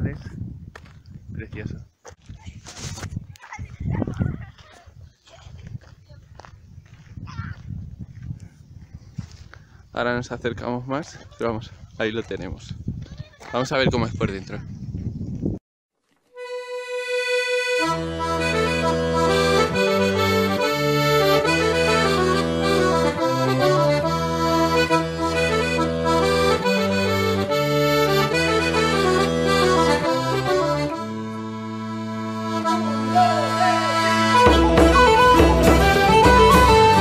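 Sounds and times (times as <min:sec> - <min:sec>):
folk melody on reed instrument: 0:16.3 - 0:37.0
bass notes drone: 0:17.6 - 0:37.0.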